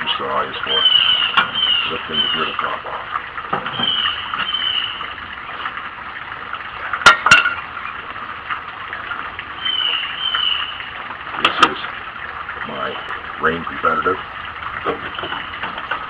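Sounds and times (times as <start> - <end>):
bird whistling: 0.7 - 2.6, 3.7 - 5.0, 9.6 - 10.8
glass jar clinking: 7.0 - 7.6.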